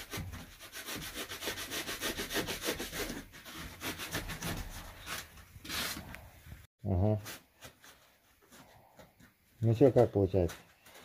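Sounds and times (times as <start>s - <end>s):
fast scraping strokes: 0.0s - 6.1s.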